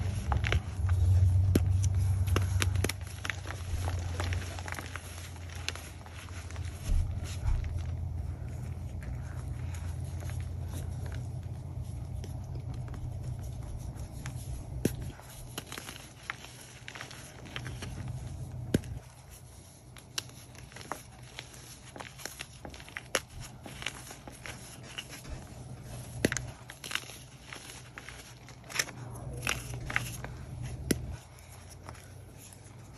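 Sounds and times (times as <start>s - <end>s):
low rumble: 0.0s - 15.4s
chalk crumbling and cracking: 0.0s - 32.9s.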